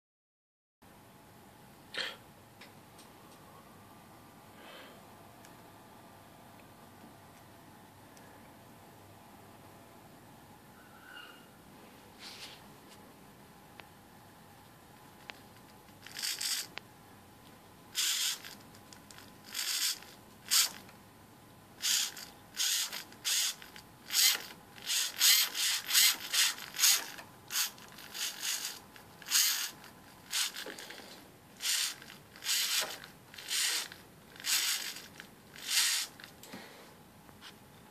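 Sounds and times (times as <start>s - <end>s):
servo motor whirring: 16.0s - 16.7s, 18.0s - 20.8s, 21.8s - 31.0s, 31.6s - 36.2s.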